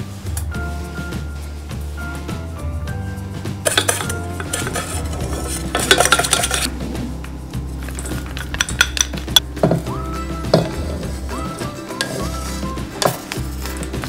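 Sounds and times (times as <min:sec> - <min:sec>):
soft background music: 0:00.0 - 0:14.0
chopsticks scraping metal bowl: 0:03.7 - 0:06.7, 0:11.3 - 0:14.0.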